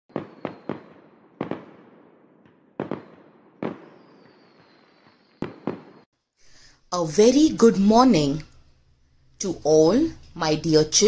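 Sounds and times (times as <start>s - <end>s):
sharp bangs: 0.1s - 6.1s.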